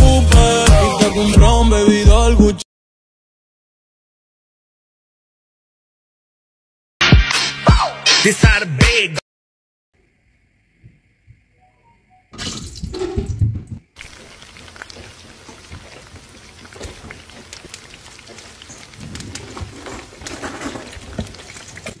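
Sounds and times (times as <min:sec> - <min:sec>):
peppers sizzling in hot oil: 0:13.9 - 0:22.0.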